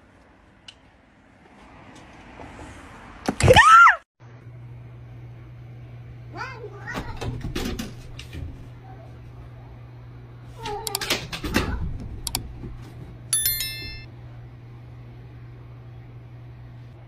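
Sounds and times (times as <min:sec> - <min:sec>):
electronic chime: 0:13.4 - 0:14.1.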